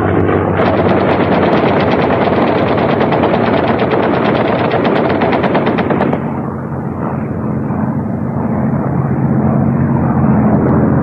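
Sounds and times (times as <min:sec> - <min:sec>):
aircraft engine drone: 0:00.0 - 0:11.0
machine-gun fire: 0:00.6 - 0:06.4.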